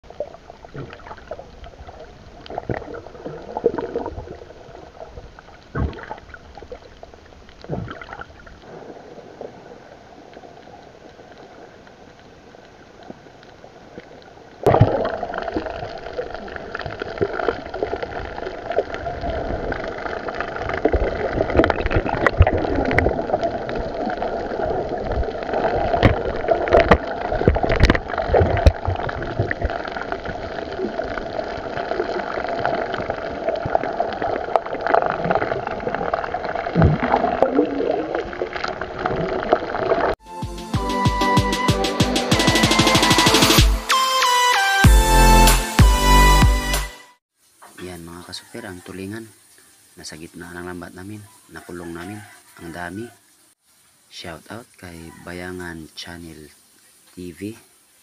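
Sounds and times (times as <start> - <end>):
underwater gurgling and rushing: 0.0 - 40.2.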